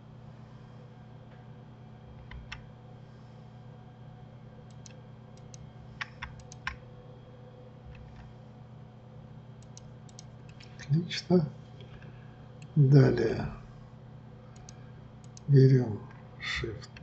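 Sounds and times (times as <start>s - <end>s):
steady low hum: 0.0s - 17.0s
computer keyboard and mouse clicks: 2.2s - 2.6s, 4.7s - 6.8s, 9.6s - 10.7s, 14.6s - 15.5s.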